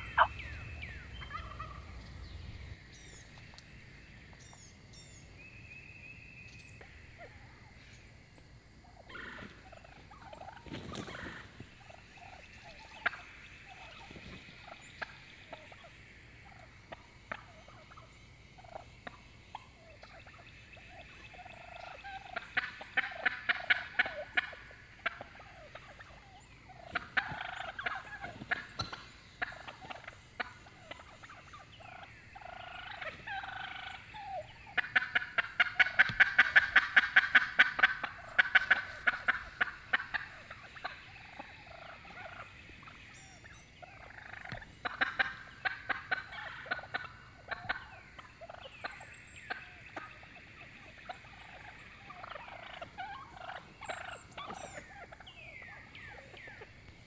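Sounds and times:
turkey calling: 0.0s - 3.8s, 4.4s - 56.9s.

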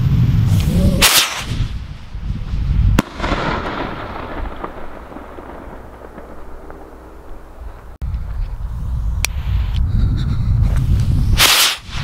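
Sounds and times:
rocket launching with rushing hiss: 0.0s - 7.2s, 10.8s - 12.0s
sharp firework bang: 3.0s - 7.2s
rumble of echo: 3.0s - 8.3s.

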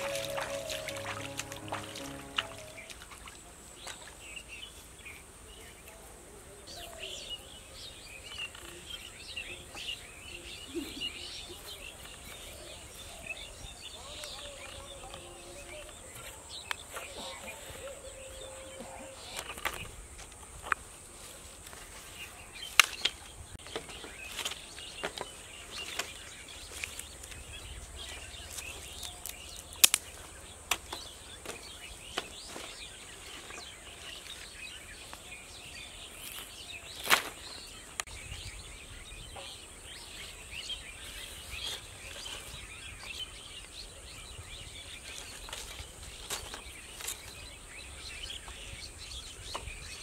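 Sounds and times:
birds chirping: 0.0s - 3.4s.

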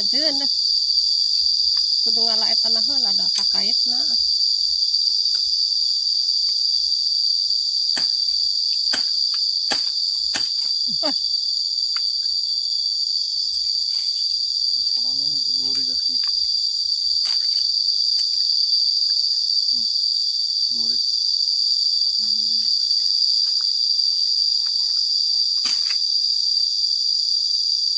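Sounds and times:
insect chorus drone: 0.0s - 27.9s
machete chopping undergrowth: 7.9s - 10.8s, 25.6s - 26.0s.

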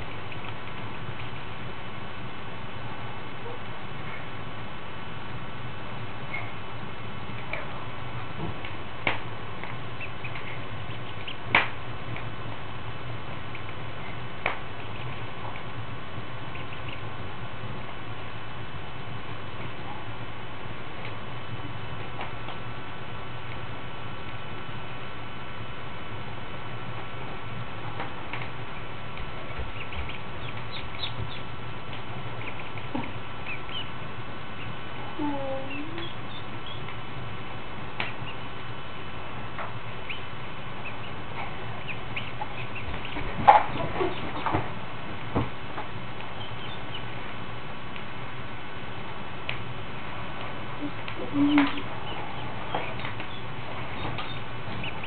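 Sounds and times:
ducklings peeping: 0.0s - 1.6s, 6.2s - 6.6s, 7.3s - 12.3s, 13.5s - 15.6s, 16.4s - 17.2s, 28.0s - 37.1s, 37.9s - 48.8s, 49.4s - 55.0s
steady low hum: 0.0s - 55.0s.

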